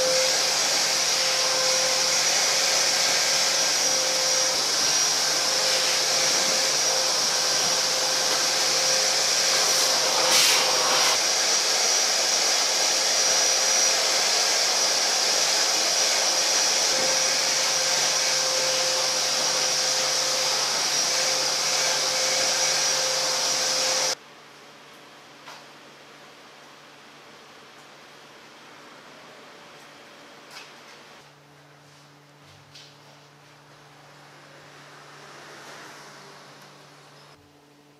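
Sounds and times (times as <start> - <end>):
electric blower running: 0.0 - 24.2.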